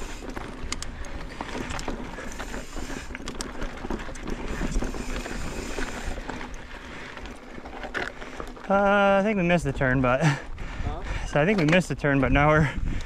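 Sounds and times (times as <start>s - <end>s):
wind rumble on microphone: 0.0s - 6.7s, 12.0s - 13.0s
bike clicking and rattling: 0.0s - 13.0s
bike tyres rolling on loose ground: 0.0s - 13.0s.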